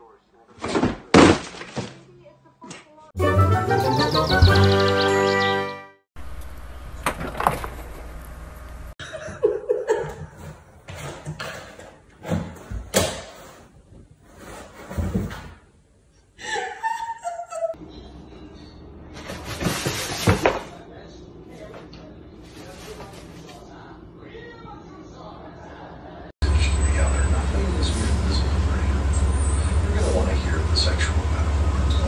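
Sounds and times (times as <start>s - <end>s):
people laughing: 9.0s - 10.3s, 16.4s - 17.8s.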